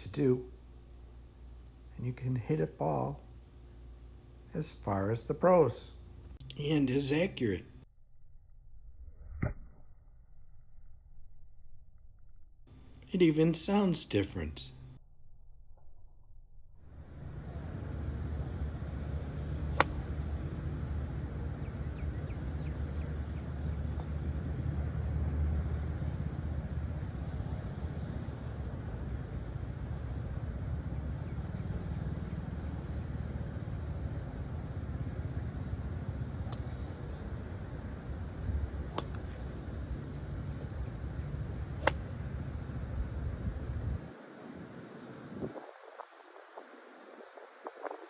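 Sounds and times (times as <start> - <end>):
steady low rumble: 0.0 - 48.0
golf club striking ball: 19.7 - 20.2, 38.9 - 39.4, 41.7 - 42.3.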